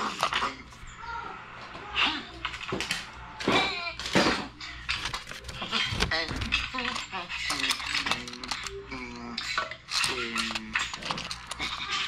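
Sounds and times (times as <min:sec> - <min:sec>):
plastic toy clattering on tile: 0:02.5 - 0:08.8, 0:09.5 - 0:12.0.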